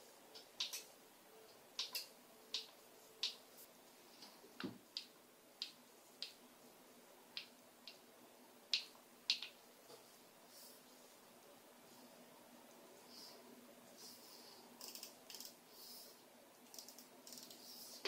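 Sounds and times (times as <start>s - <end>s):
buttons and knobs clicking: 1.5s - 3.4s.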